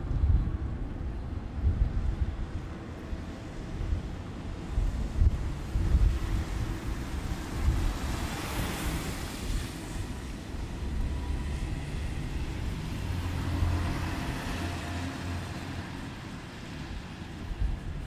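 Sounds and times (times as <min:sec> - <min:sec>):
low traffic rumble: 0:00.0 - 0:18.0
tyres hissing on wet road: 0:04.5 - 0:18.0.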